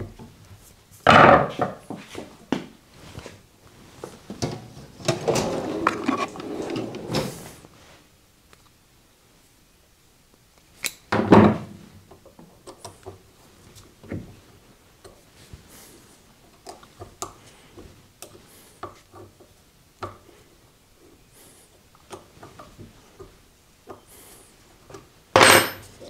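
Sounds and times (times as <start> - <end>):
rustling and scraping: 1.6 - 8.1.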